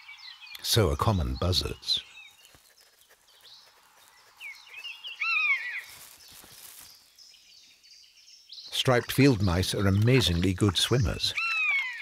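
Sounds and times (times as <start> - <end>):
small birds chirping: 0.0 - 12.0
buzzard mewing calls: 8.9 - 12.0.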